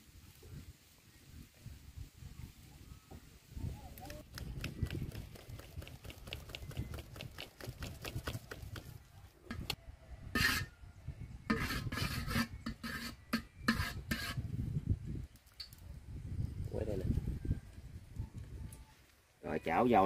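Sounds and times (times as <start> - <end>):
rasping scraping strokes: 10.4 - 10.7, 11.5 - 14.5.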